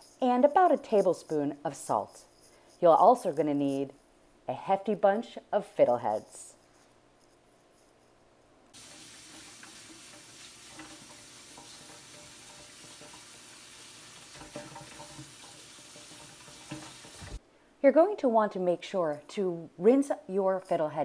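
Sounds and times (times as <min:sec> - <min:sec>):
tap running into steel sink: 0:08.8 - 0:17.4.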